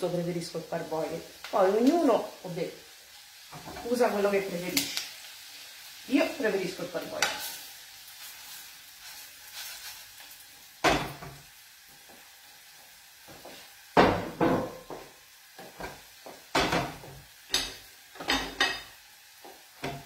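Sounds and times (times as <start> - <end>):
rice sizzling in a pan: 0.0 - 20.0
pots and pans clattering: 10.8 - 11.4, 14.0 - 18.9, 19.8 - 20.0.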